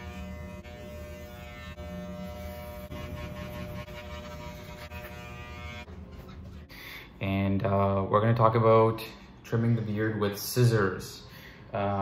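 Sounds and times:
electric hair clippers buzzing: 0.0 - 6.0.

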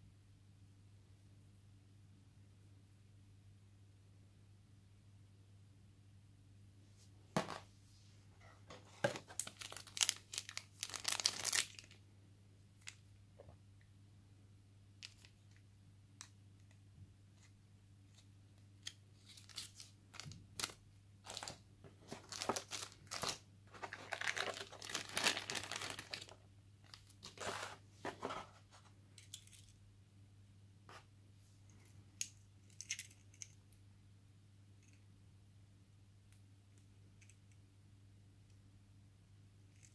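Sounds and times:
cardboard packaging rustling: 8.7 - 12.0, 19.2 - 28.8
plastic wrapping crinkling: 8.9 - 12.0, 19.2 - 28.2.

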